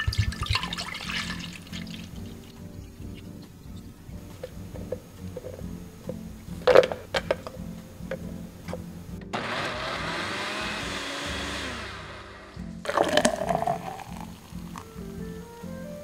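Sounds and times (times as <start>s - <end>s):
blender running: 9.4s - 13.3s.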